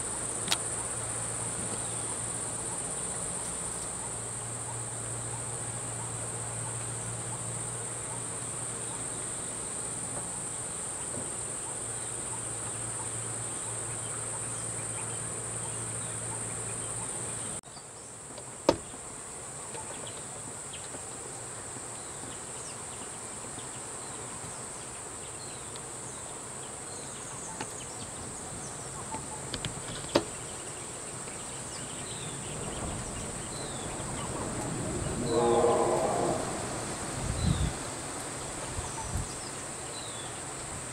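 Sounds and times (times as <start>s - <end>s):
insects droning: 0.0s - 40.9s
low steady hum: 31.3s - 37.9s.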